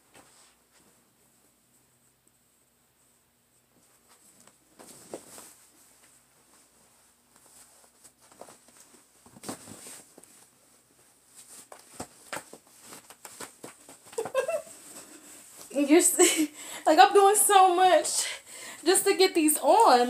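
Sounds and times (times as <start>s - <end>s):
clothing rustling: 3.5s - 16.5s.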